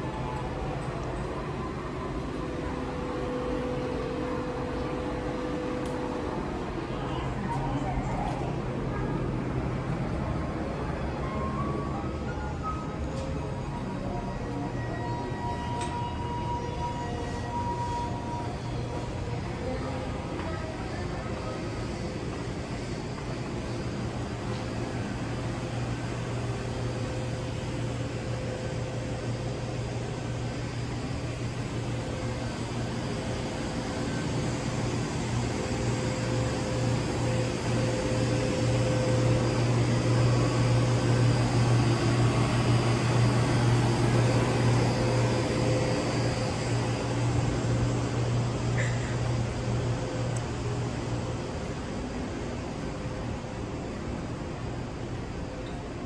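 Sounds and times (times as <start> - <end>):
mechanical equipment hum: 0.0 - 56.0
faint high tone: 10.8 - 21.8.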